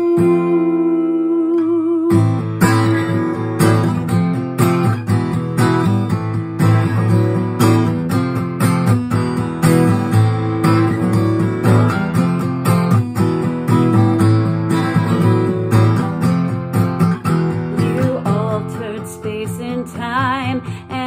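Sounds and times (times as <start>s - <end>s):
woman singing with vibrato: 0.0s - 2.5s, 17.7s - 21.0s
acoustic guitar strumming: 0.0s - 21.0s.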